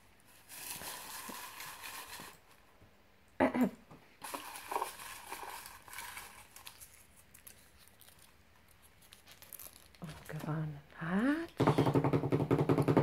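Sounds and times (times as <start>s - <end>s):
paper rustling in plastic tub: 0.2s - 2.6s, 4.2s - 8.3s.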